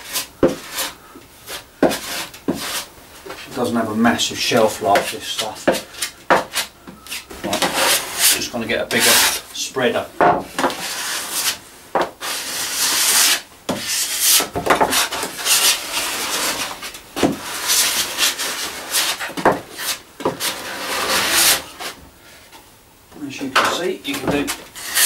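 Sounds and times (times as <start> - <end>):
filler knife scraping wood: 0.0 - 3.7, 4.6 - 9.5, 12.2 - 22.0, 23.6 - 25.0.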